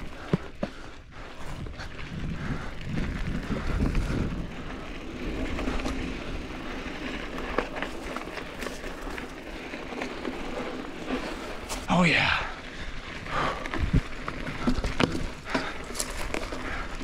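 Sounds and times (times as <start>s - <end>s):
bike clicks and knocks: 0.0s - 1.8s, 13.4s - 17.0s
bike tyres rolling on gravel: 0.0s - 17.0s.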